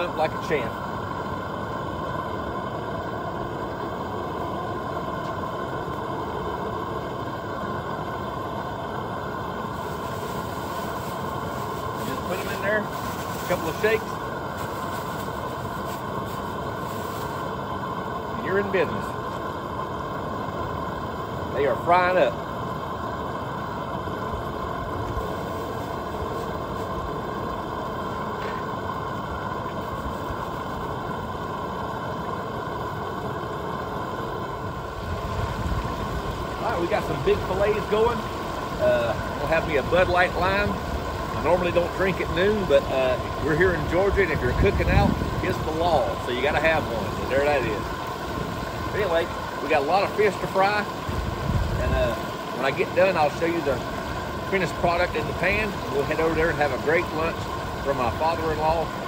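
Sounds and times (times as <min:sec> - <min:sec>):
fish frying in grease: 0:00.0 - 0:59.0
gas burner rushing: 0:00.0 - 0:59.0
fish sizzling in hot grease: 0:09.2 - 0:18.3, 0:24.2 - 0:27.8.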